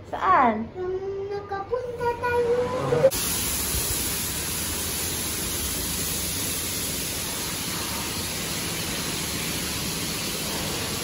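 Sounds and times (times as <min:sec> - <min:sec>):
steady hiss: 0:03.1 - 0:11.0.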